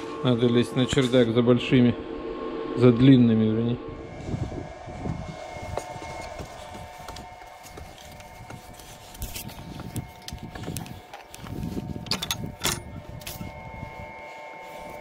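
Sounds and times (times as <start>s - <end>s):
faint steady hum: 0.0s - 15.0s
footsteps on wooden boards: 5.6s - 11.7s.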